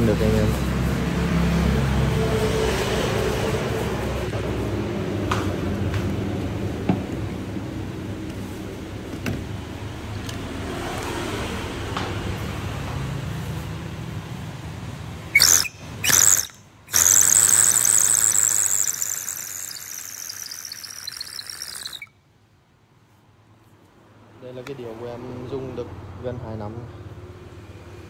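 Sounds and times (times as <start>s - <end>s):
water pipe whistling: 15.3s - 22.1s.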